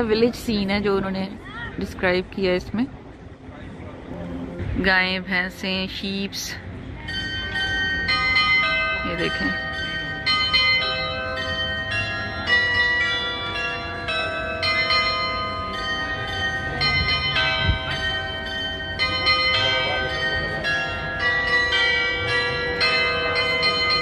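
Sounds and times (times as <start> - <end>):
bells ringing at several pitches: 7.0 - 24.0.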